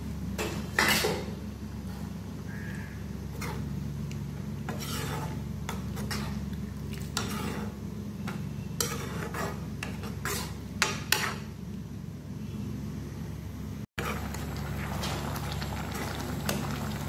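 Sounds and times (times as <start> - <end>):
spatula scraping a pan: 3.3 - 3.8, 4.6 - 11.6.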